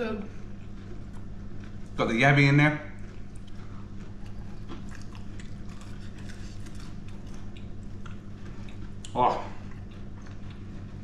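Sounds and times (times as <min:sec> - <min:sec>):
steady low hum: 0:00.0 - 0:11.0
person chewing food: 0:03.0 - 0:11.0.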